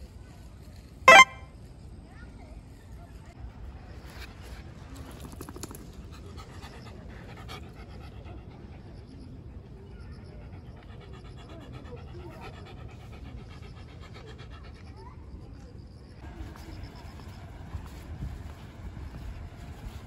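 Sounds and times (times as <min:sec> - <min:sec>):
dog panting: 0:10.4 - 0:15.2.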